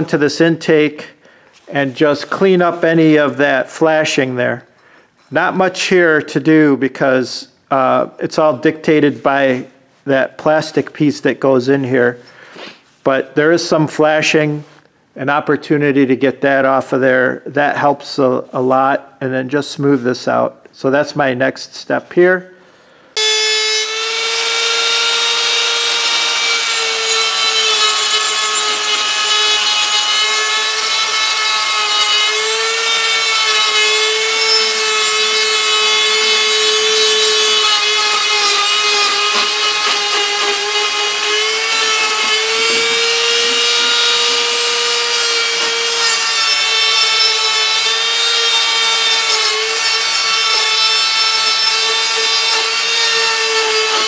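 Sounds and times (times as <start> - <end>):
rotary tool grinding metal: 23.2 - 54.0.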